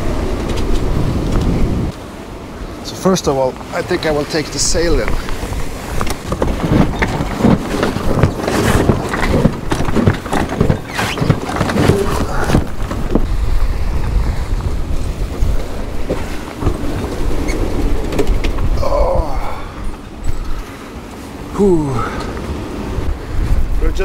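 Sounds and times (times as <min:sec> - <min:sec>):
breaking seas rushing: 0:00.0 - 0:24.0
knocks and rattles of sail furling: 0:00.0 - 0:24.0
strong wind: 0:00.0 - 0:24.0
wind buffeting microphone: 0:00.0 - 0:24.0.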